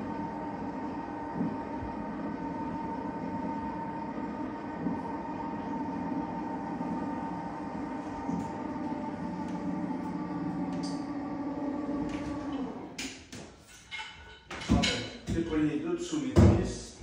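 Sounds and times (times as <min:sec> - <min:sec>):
electric hoist motor humming: 0:00.0 - 0:13.0.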